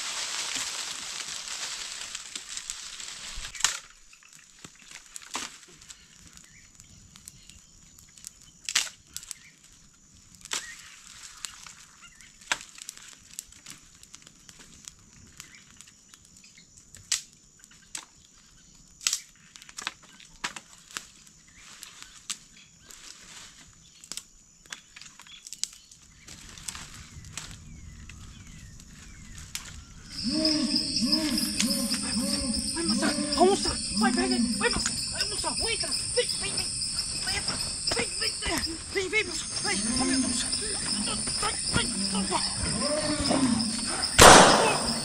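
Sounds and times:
rushing hiss: 0.0 - 3.5
campfire crackling: 0.0 - 17.6, 24.1 - 45.0.

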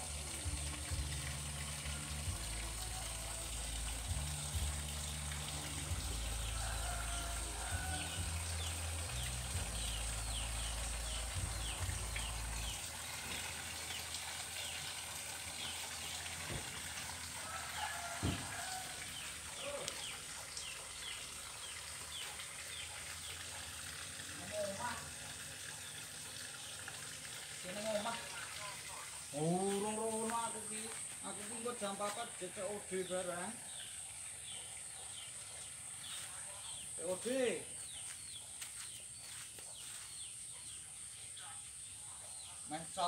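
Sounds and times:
small birds chirping: 27.7 - 43.0.

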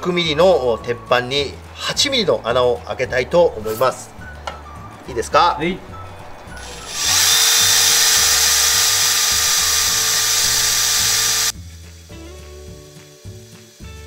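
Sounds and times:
background music with steady beat: 0.0 - 14.0
cordless drill drilling into steel: 6.6 - 11.5.

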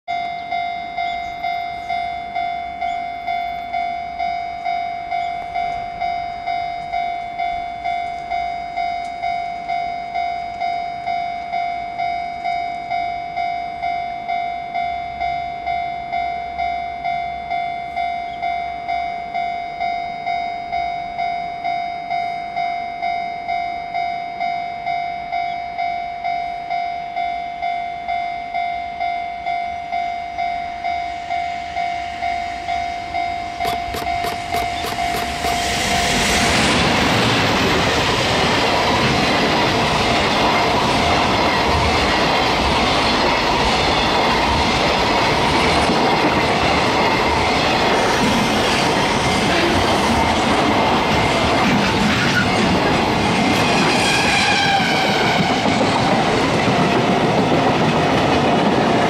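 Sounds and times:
level crossing bell ringing: 0.1 - 35.5.

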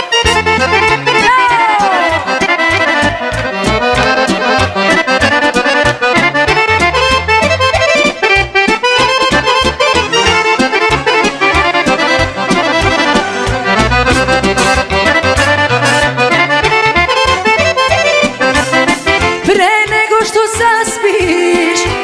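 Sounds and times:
accordion melody: 0.0 - 22.0
pulsing bass: 2.0 - 19.3.

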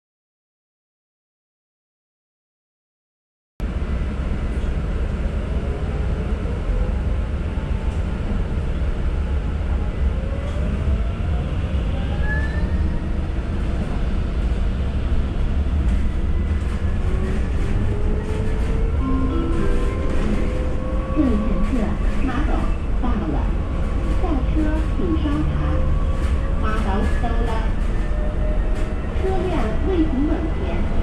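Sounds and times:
bus engine and tyre rumble: 3.6 - 31.0
bus engine whine: 3.6 - 31.0.

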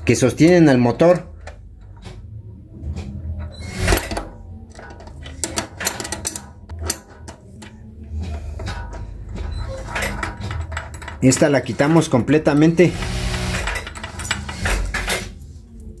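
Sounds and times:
wrench clinking on metal: 3.9 - 7.8, 8.9 - 16.0.

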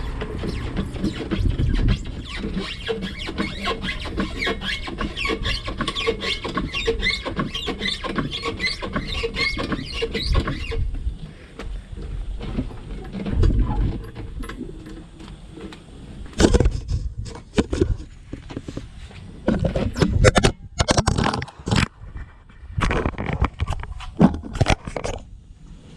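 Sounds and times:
metal scraping: 0.0 - 10.9
metal squeaks: 0.0 - 10.9.

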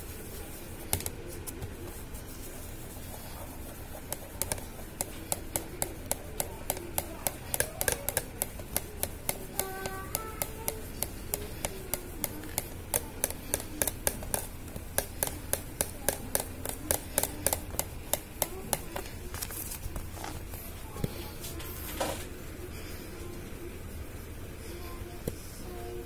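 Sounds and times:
plastic ticking under rubbing: 3.0 - 21.2.

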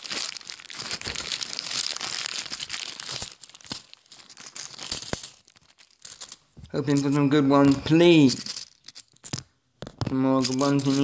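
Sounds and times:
plastic coin bag crinkling: 0.0 - 9.4, 10.3 - 11.0.

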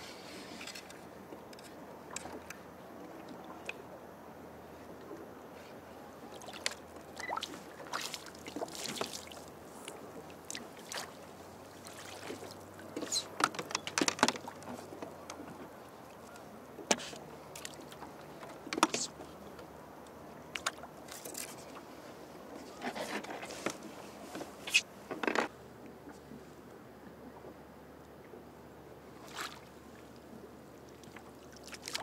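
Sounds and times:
knocks and clicks aboard kayak: 12.9 - 17.2, 18.0 - 19.7, 22.8 - 25.6.

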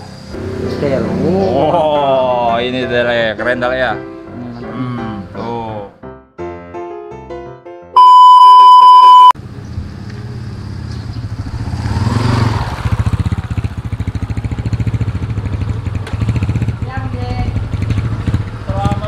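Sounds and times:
high electronic beep: 8.0 - 9.4.

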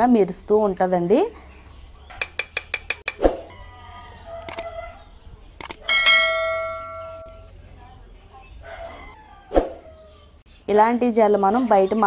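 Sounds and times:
mouse clicks: 4.4 - 4.7, 5.6 - 5.8
notification bell chime: 5.9 - 7.5.

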